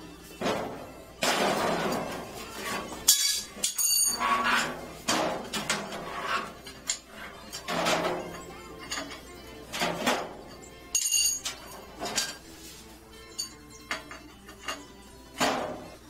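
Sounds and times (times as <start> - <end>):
sheet metal clanking and scraping: 0.4 - 10.5.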